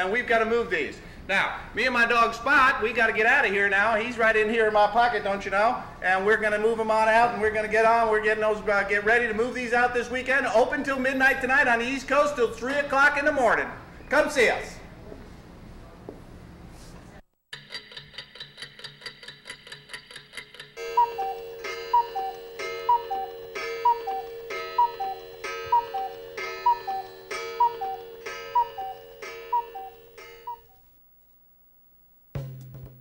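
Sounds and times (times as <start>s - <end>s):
stopwatch ticking: 20.8s - 30.6s
short ringing tone: 20.8s - 30.8s.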